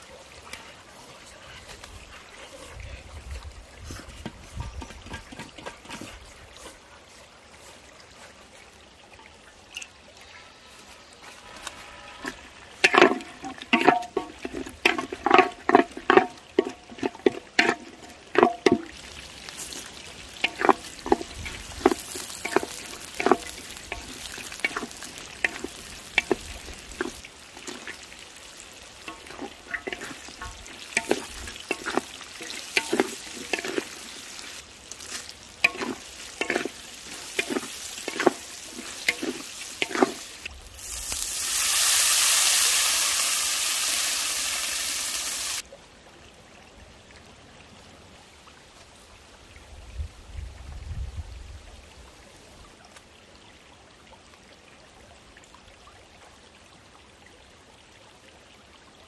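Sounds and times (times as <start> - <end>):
wooden spatula scraping a wok: 3.8 - 6.9, 11.2 - 28.0, 29.0 - 41.3
food sizzling in oil: 11.4 - 45.6
water poured into hot wok: 11.4 - 45.6.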